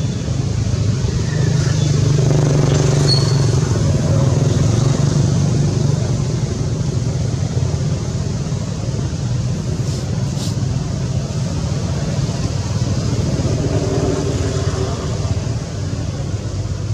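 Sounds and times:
short high chirps: 3.1 - 3.6.

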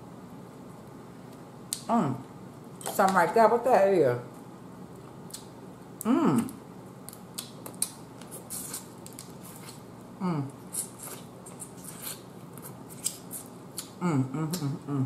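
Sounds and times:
person humming: 6.0 - 6.6, 10.2 - 10.6, 14.0 - 15.0
mouth and lip sounds: 13.0 - 15.0.

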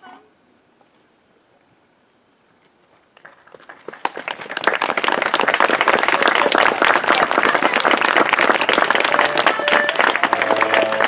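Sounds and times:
audience applauding: 3.2 - 11.0.

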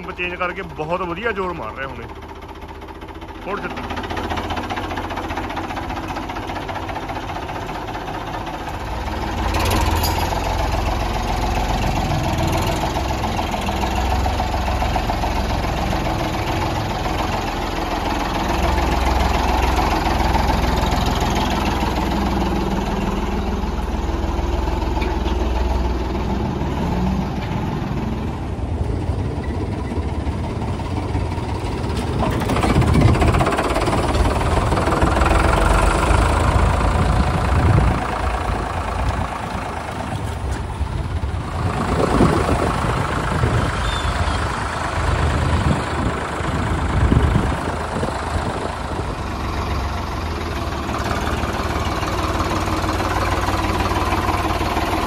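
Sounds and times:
tractor engine running: 0.0 - 55.0.

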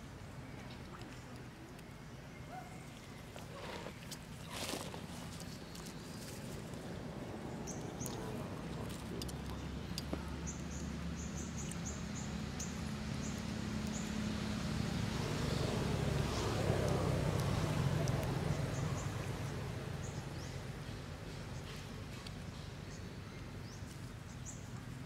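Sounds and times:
motor vehicle passing by: 6.4 - 22.9.

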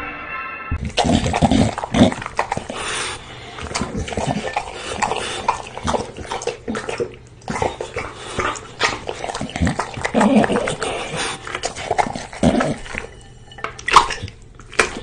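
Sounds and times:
music: 0.0 - 0.8
dog chewing and slurping: 0.8 - 15.0.

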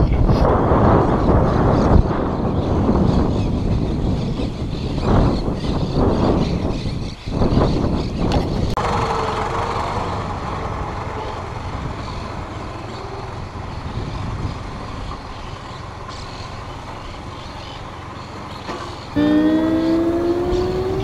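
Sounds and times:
vehicle engine running: 8.8 - 21.0.

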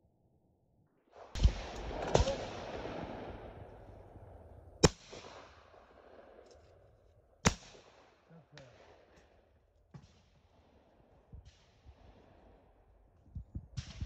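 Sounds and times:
shotgun shots: 1.2 - 6.5, 7.4 - 9.2
gunshot report rolling away: 1.2 - 7.0.

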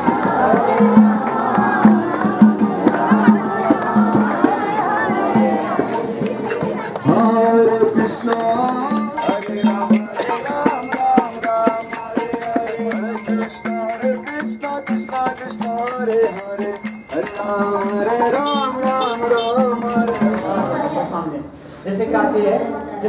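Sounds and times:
jingling hand percussion: 0.0 - 21.3
person singing: 7.1 - 21.1.

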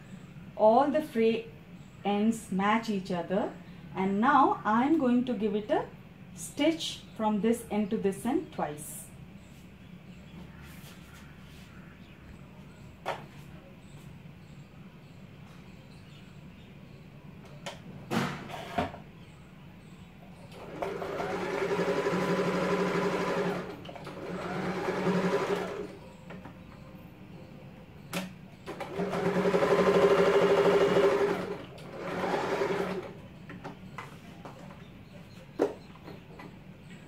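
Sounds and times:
electric sewing machine stitching: 20.6 - 26.0, 28.7 - 33.2.

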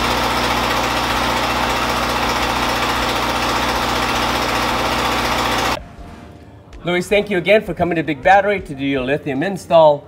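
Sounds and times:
generator engine running: 0.0 - 5.8.

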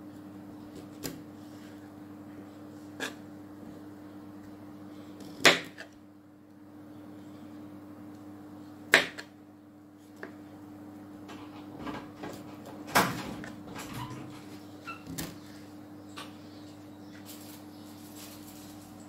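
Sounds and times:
steady low hum: 0.0 - 19.0
broccoli rustling: 17.2 - 19.0.

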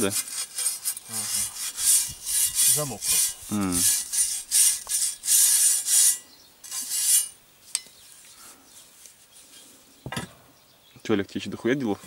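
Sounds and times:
hand scrubbing steel rim: 0.0 - 7.4.

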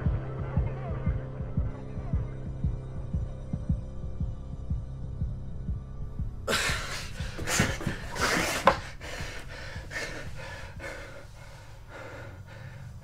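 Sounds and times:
low rhythmic heartbeat-like throb: 0.0 - 13.0
man panting and gasping: 6.5 - 13.0.

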